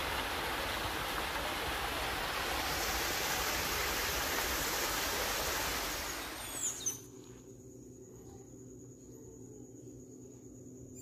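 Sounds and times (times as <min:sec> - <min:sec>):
running water: 0:00.0 - 0:06.9.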